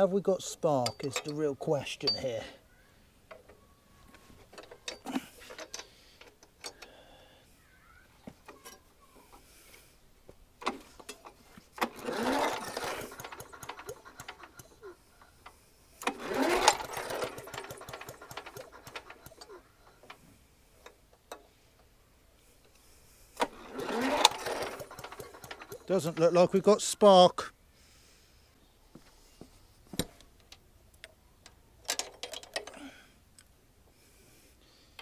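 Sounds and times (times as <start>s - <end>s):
mower engine recoil starter pulls: 4.4s - 7.1s, 10.6s - 21.4s, 23.4s - 27.0s, 31.9s - 33.0s.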